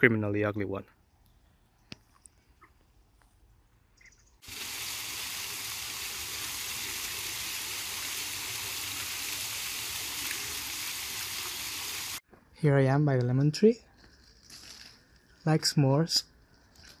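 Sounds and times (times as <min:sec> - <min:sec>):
fountain splashing on paving: 0:04.4 - 0:12.2.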